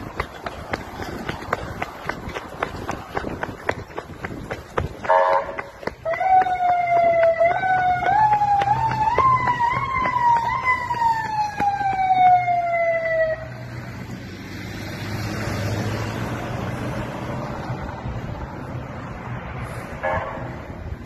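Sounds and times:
vehicles driving past: 0.0 - 21.0
emergency siren wailing: 5.1 - 13.9.

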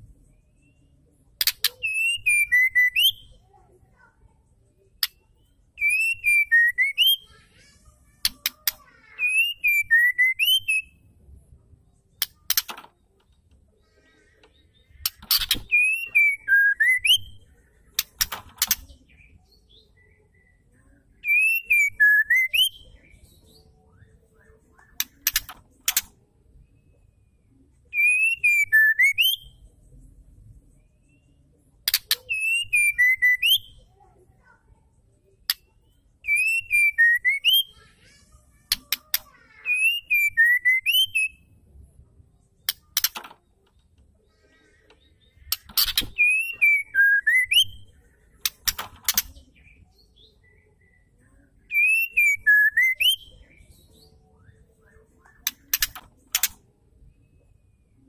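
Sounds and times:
bird whistling call: 1.8 - 3.3, 9.2 - 10.9, 45.8 - 47.9, 51.7 - 53.3.

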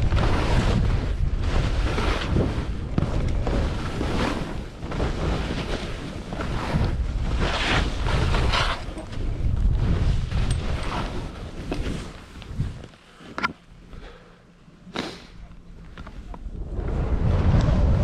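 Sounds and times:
skis swishing through snow: 0.0 - 12.8
wind buffeting microphone: 0.0 - 12.9, 15.5 - 18.0.

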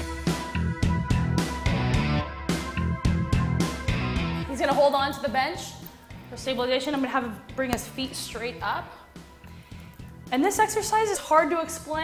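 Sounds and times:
guitar music with steady beat: 0.0 - 4.8.

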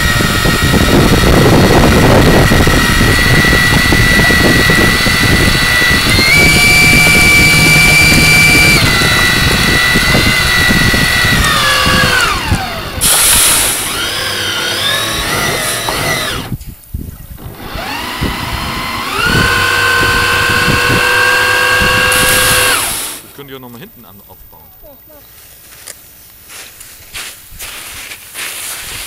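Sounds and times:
electric motor whining: 0.0 - 16.7, 17.3 - 23.5.

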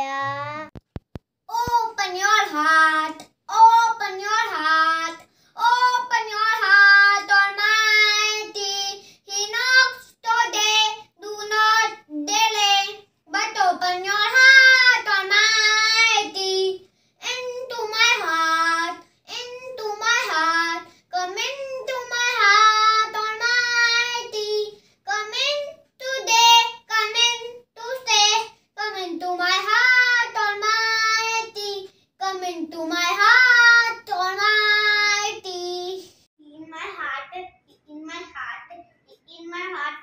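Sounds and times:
boy singing unaccompanied: 0.0 - 0.8, 1.5 - 36.1.

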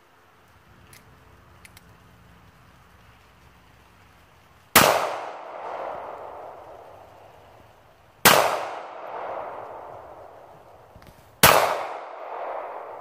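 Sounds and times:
pistol shots with echo: 4.8 - 6.8, 8.2 - 10.3, 11.4 - 13.0.

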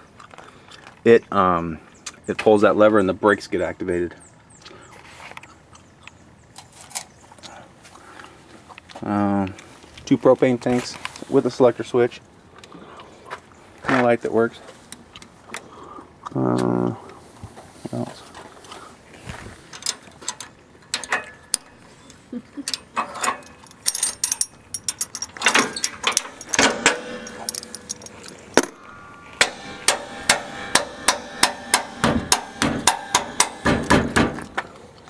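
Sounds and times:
metal jack crank clicking: 22.6 - 28.8.

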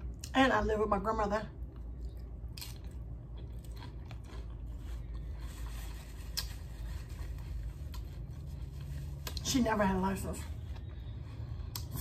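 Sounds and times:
person chewing crunchy chips: 1.6 - 9.4.

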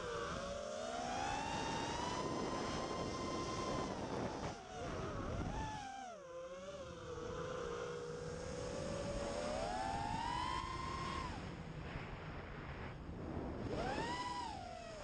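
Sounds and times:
wind rushing on microphone: 0.0 - 5.9, 6.9 - 15.0
quadcopter motors whining: 0.0 - 12.3, 13.1 - 15.0.

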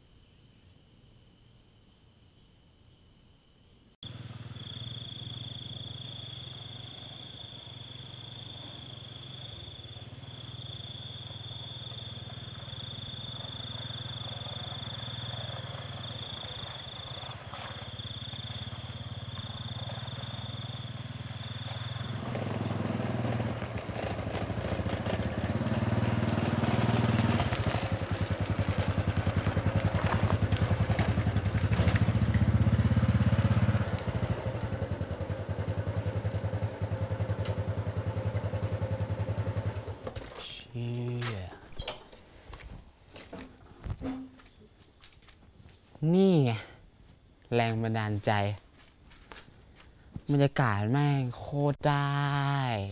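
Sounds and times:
motorcycle engine running: 4.0 - 40.3.

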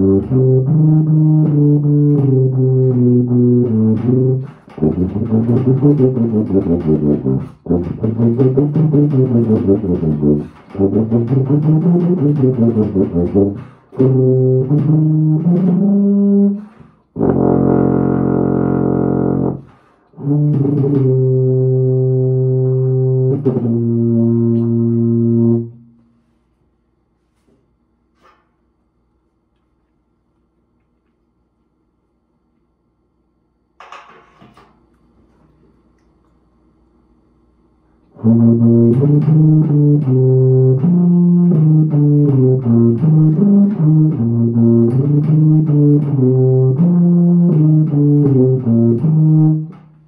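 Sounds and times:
low brass instrument playing: 0.0 - 26.4, 38.1 - 49.9.

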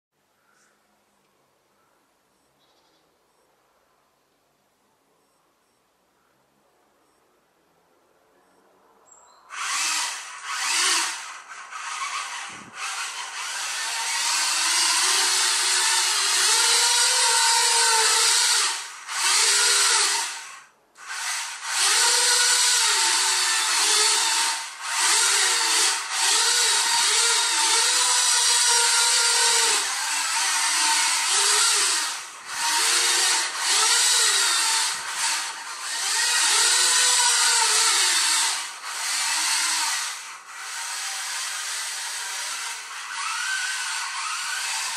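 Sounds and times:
toy car gear motors whirring: 9.5 - 44.9.

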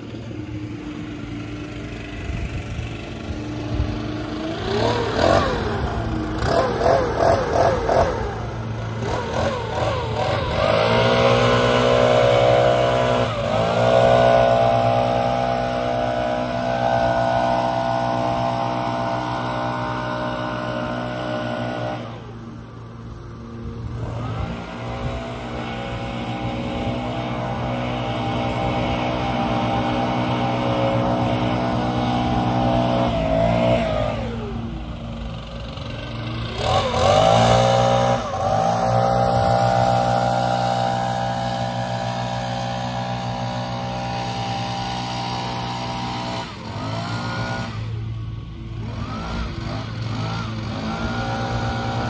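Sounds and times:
leaf blower engine revving: 0.0 - 52.0
low engine drone: 0.0 - 52.0.

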